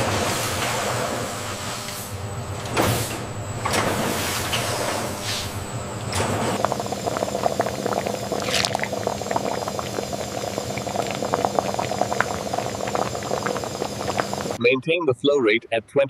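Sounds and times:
broth bubbling at a boil: 6.6s - 14.6s.

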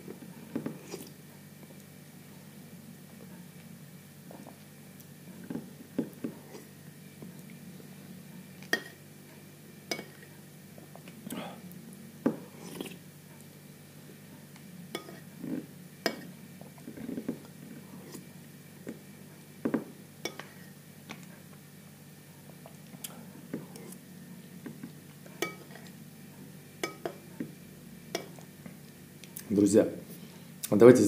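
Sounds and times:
spoon clinking on ceramic bowl: 25.4s - 25.8s, 26.8s - 27.2s.

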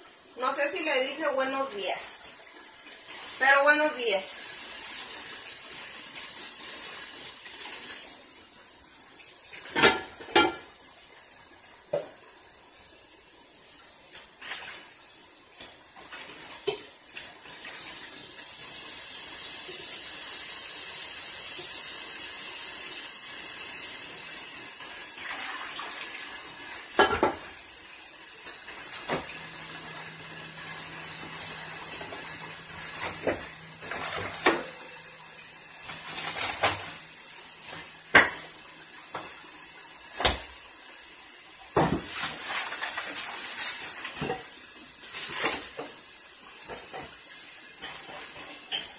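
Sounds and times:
pots and dishes clanking: 9.6s - 10.8s, 26.9s - 27.6s, 29.0s - 35.0s, 37.7s - 39.4s, 46.6s - 47.2s, 47.8s - 48.9s
tap running into sink: 11.9s - 12.2s, 26.9s - 27.6s, 28.6s - 35.1s, 37.6s - 39.4s, 40.1s - 40.7s.

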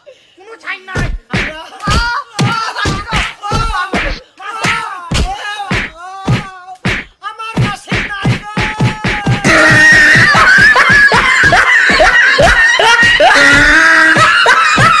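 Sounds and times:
boys screaming and wailing: 0.8s - 6.8s, 7.7s - 15.0s
music with a quick beat: 5.1s - 12.1s.

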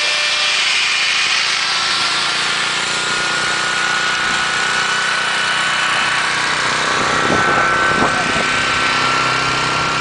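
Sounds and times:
electric drill mixer whining: 0.0s - 10.0s.

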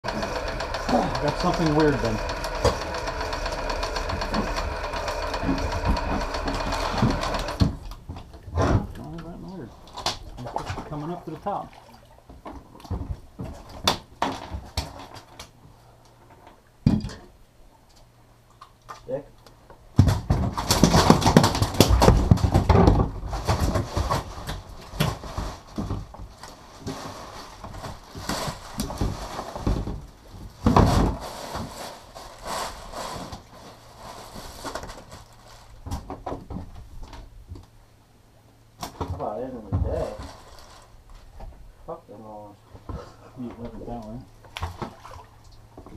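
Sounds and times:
knocks and clatter on boat deck: 28.9s - 31.2s.

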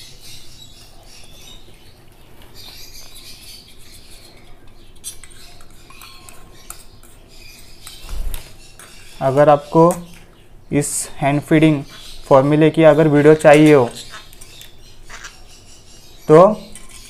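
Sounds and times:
baby bird squeaky chirps: 13.9s - 17.0s.

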